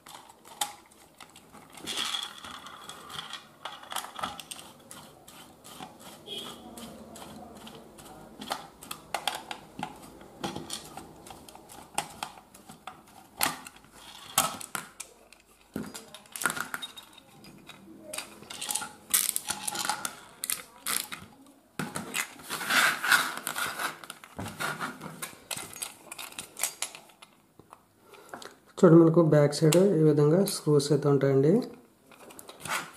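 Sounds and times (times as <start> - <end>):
plastic clicks and clatter: 0.0 - 6.2, 6.8 - 22.4, 23.3 - 28.6.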